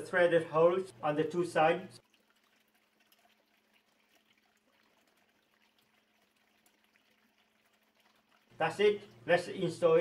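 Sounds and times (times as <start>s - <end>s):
faint room hiss: 3.0s - 10.0s.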